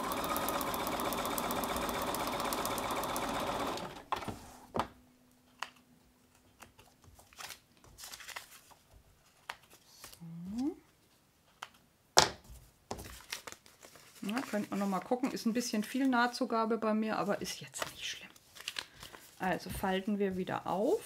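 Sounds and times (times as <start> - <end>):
sewing machine stitching: 0.0 - 4.3
fabric and paper rustling: 6.2 - 10.8, 12.4 - 16.4, 17.1 - 21.0.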